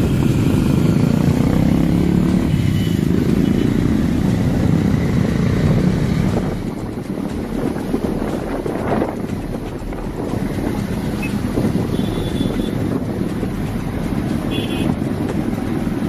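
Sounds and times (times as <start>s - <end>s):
motorcycle engines running: 0.0s - 16.0s
wind rushing over microphone: 0.0s - 16.0s.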